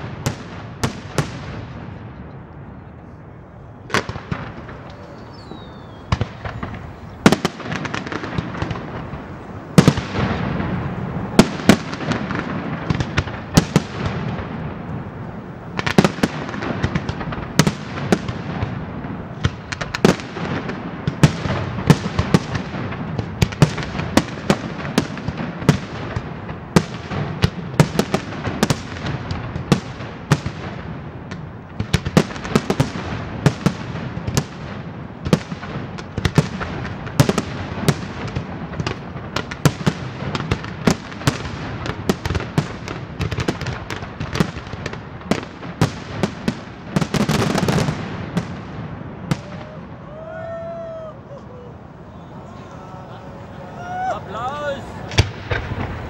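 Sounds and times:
firework crackle: 3.8s - 56.0s
firework shells bursting: 3.9s - 22.9s.

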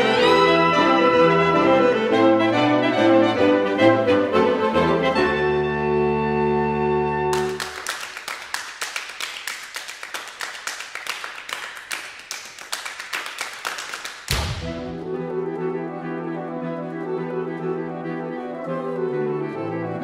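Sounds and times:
hands clapping in rhythm: 7.3s - 14.8s.

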